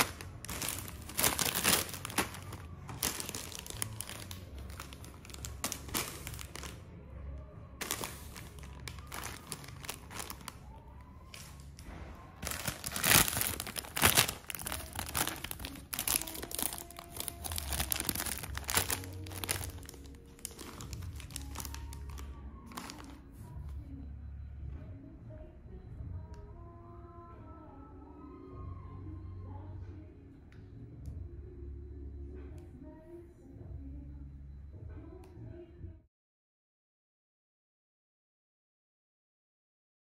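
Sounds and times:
foil snack bags crinkling: 0.0 - 6.8, 7.8 - 23.4.

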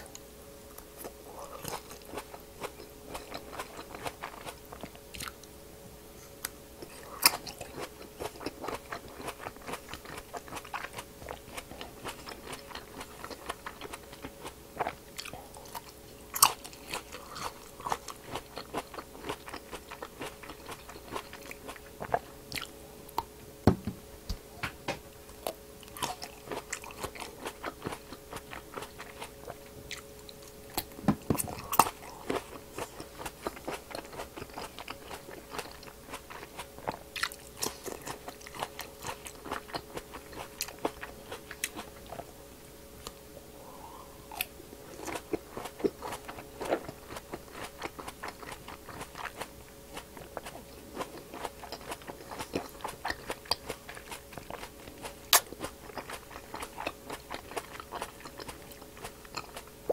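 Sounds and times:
biting and chewing grapes: 0.0 - 5.6, 6.2 - 23.9, 25.2 - 42.4, 44.2 - 59.9.

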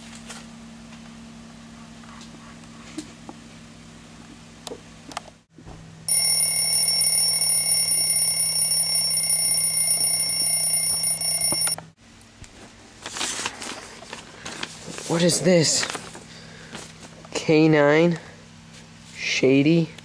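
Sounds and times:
high-pitched electronic alarm tone: 6.1 - 11.8.

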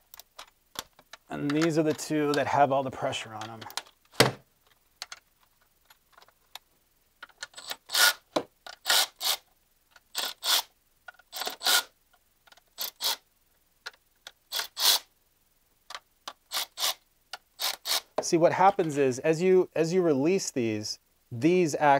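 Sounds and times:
ratchet wrench ratcheting: 7.4 - 9.4, 10.1 - 11.9, 12.8 - 13.2, 14.5 - 15.1, 16.3 - 18.1.

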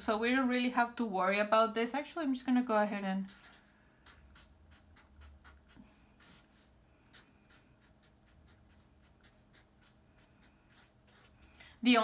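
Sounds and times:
marker pen scratching: 3.2 - 6.5, 7.1 - 11.5.

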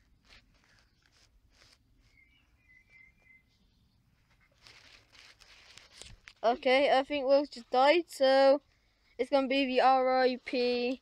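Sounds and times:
faint rustling: 0.0 - 11.0
faint high chirps: 2.0 - 4.2.

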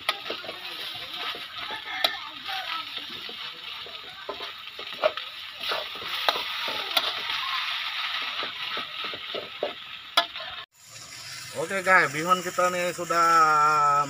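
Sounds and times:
metal clinking on a wok: 0.0 - 7.3
utensils scraping a wok: 0.0 - 10.7
noodles sizzling in a wok: 0.0 - 14.0.

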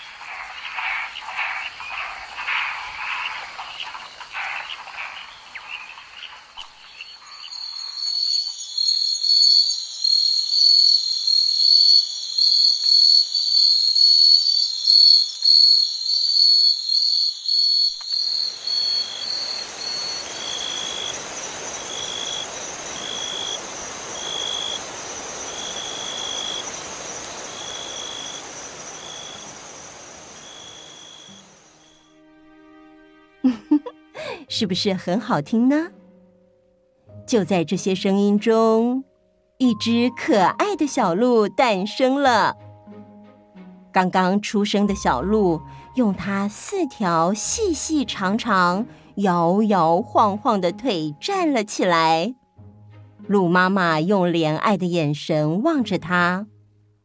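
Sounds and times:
frog chorus pulsing: 0.0 - 32.0
high insect drone: 0.0 - 32.1
high insect trill: 0.0 - 32.1
steady hiss: 18.3 - 32.0.

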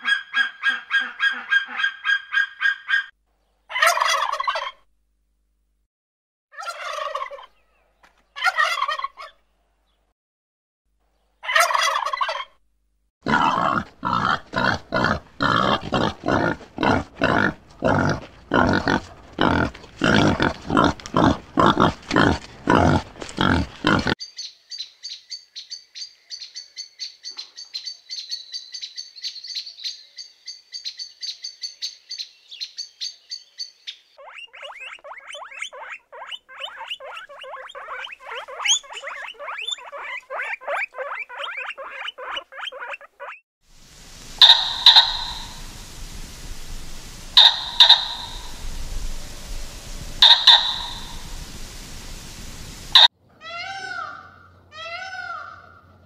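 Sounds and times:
animal calls: 0.0 - 3.1, 34.2 - 43.4, 44.4 - 55.8
high-pitched animal chattering: 34.2 - 43.4, 44.4 - 45.6, 47.4 - 48.6, 50.2 - 51.2.

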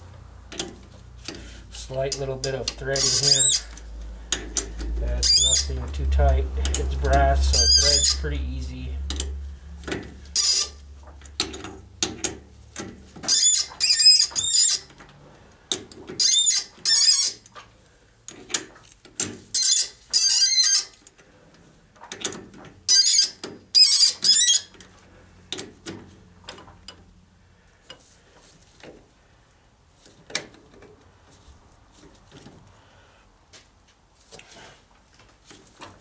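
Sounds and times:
threading die squealing on brass rod: 2.1 - 5.8, 6.7 - 8.3, 10.3 - 10.8, 13.2 - 14.9, 16.2 - 17.5, 19.5 - 21.0, 22.9 - 24.7.

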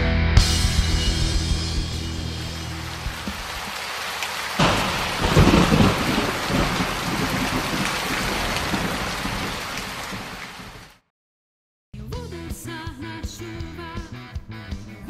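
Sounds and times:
heavy rain: 1.4 - 11.1
thunderclap rumbling: 1.7 - 10.8.

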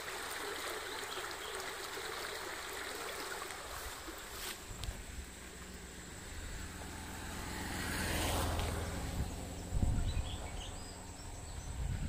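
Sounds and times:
vehicle passing: 5.0 - 11.8.

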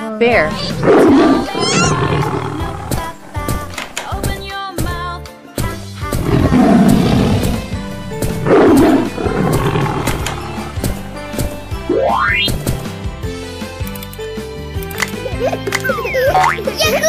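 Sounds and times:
children's background music: 0.0 - 17.0
bear growl: 0.4 - 4.1, 6.2 - 11.3.

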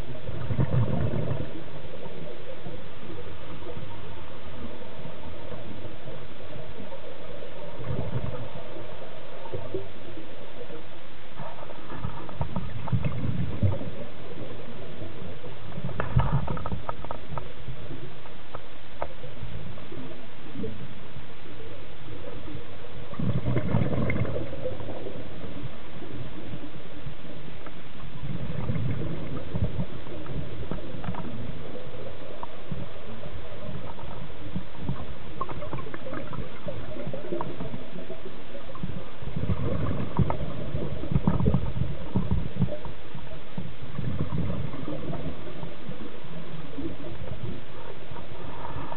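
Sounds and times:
regulator exhaled bubbles gurgling: 0.0 - 2.2, 7.7 - 8.8, 11.9 - 14.7, 23.1 - 26.2, 28.2 - 42.9, 43.9 - 48.7
steady hiss: 0.0 - 48.9
faint clicks: 15.7 - 17.6, 18.2 - 19.2, 28.9 - 32.9, 33.6 - 43.0.

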